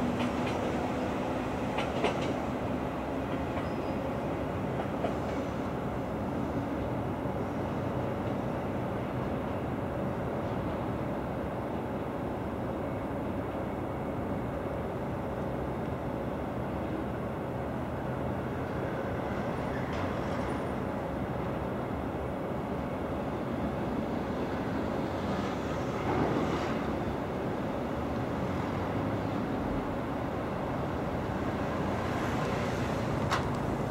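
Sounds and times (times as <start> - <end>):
railcar rumbling on track: 0.0 - 33.9.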